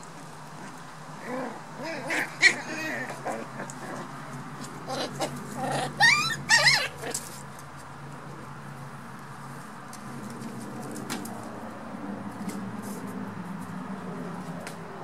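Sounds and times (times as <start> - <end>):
puppies yelping: 1.2 - 3.9, 4.8 - 7.3.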